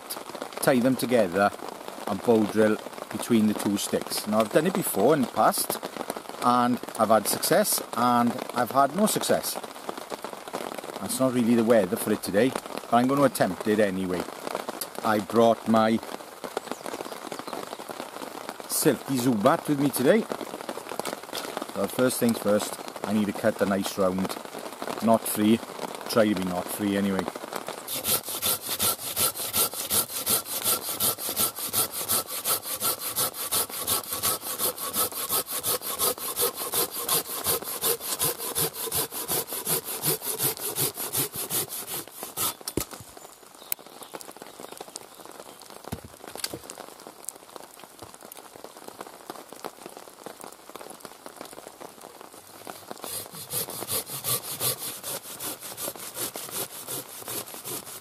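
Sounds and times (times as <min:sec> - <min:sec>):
saw cutting through log: 0:27.9 - 0:42.6, 0:52.8 - 0:58.0.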